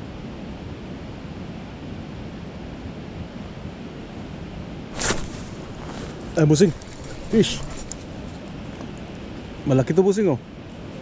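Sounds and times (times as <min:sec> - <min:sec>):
creek water rushing: 0:04.9 - 0:11.0.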